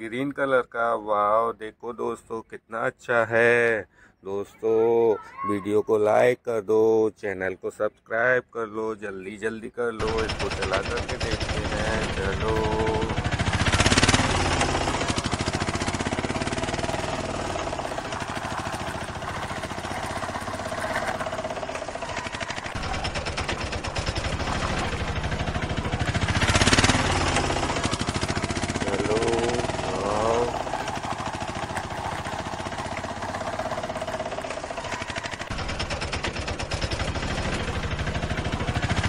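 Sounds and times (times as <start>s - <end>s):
toy vehicle rattling on concrete: 10.0s - 39.0s.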